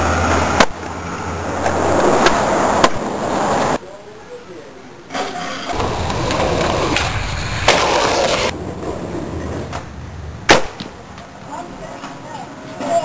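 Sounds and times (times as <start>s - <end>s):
skateboard wheels rolling on pavement: 0.0s - 3.8s, 5.1s - 13.0s
skateboard clacks: 5.2s - 8.5s.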